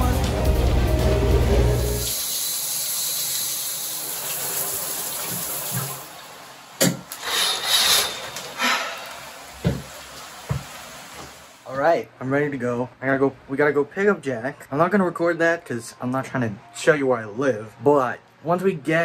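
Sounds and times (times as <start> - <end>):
water running: 0.0 - 11.7.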